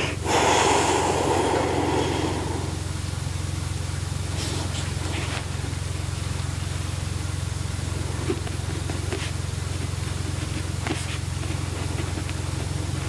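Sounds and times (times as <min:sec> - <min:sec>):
low rumbling hum: 0:00.0 - 0:13.0.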